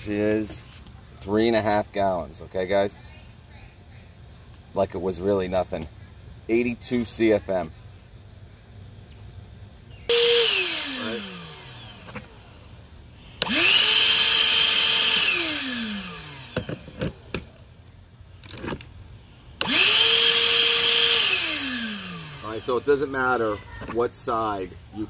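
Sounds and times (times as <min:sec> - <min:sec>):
shop vacuum motor whine: 0:10.1 - 0:17.4, 0:19.6 - 0:23.9.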